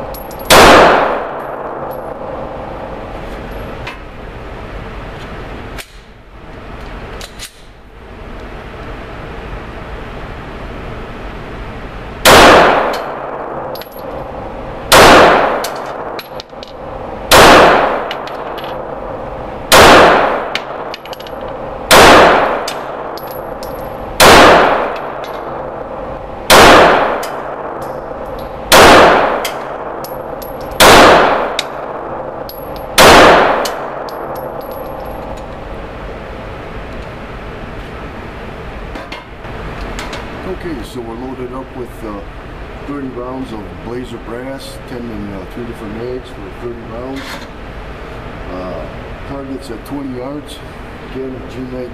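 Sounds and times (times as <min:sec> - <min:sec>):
pistol shots echoing indoors: 0:00.1 - 0:03.0, 0:12.2 - 0:35.4.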